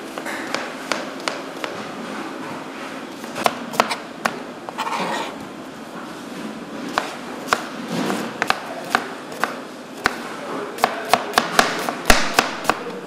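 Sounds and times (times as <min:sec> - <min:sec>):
knife chopping on cutting board: 0:00.1 - 0:01.8, 0:03.2 - 0:05.3, 0:06.9 - 0:10.2, 0:10.8 - 0:12.9.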